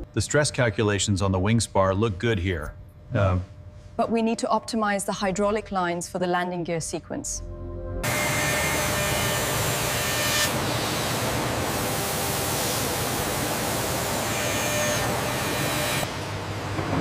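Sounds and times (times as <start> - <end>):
milling machine cutting metal: 8.0 - 16.1
coolant spray hissing: 10.5 - 14.1.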